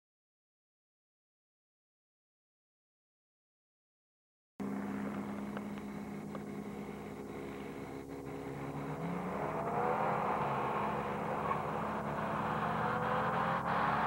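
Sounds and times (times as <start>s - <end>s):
cars accelerating hard: 4.6s - 14.0s.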